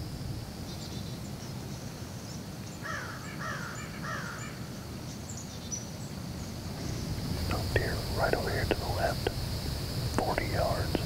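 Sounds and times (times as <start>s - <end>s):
crow cawing: 2.8s - 4.6s.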